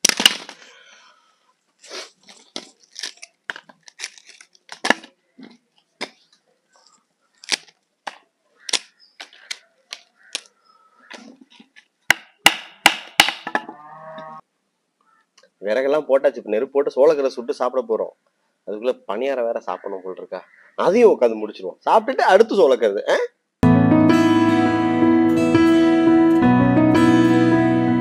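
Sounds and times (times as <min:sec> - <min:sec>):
firewood clattering on concrete: 0:13.2 - 0:13.8.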